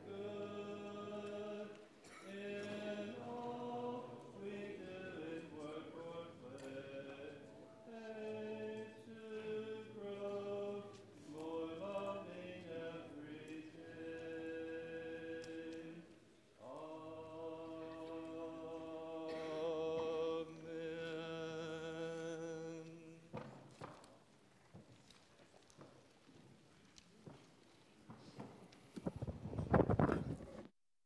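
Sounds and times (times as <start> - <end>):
congregation singing a hymn: 0.0 - 23.5.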